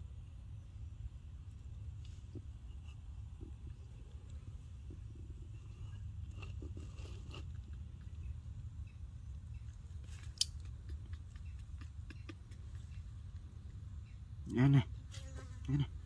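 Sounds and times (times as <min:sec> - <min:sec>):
steady low rumble: 0:00.0 - 0:14.5
monkey chewing fruit: 0:03.3 - 0:08.4, 0:09.6 - 0:13.9.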